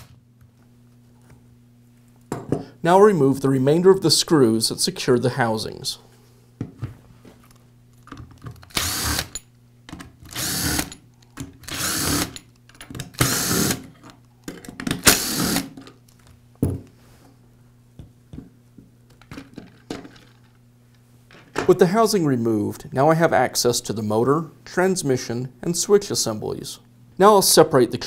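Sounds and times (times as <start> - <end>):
powered screwdriver spinning: 8.7 - 9.4.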